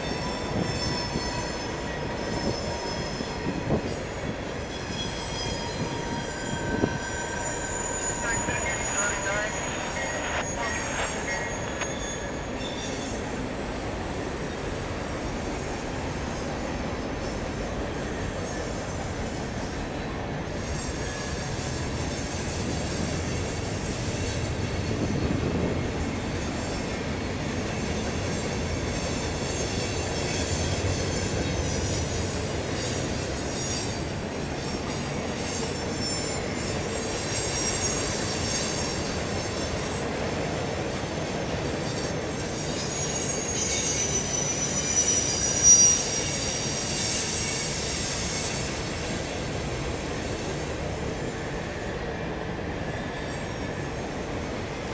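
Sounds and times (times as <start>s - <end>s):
high-pitched wheel squeal: 0.0s - 17.4s, 27.7s - 34.1s, 35.4s - 40.3s, 41.7s - 49.6s
train wheels rumbling on rails: 0.0s - 54.9s.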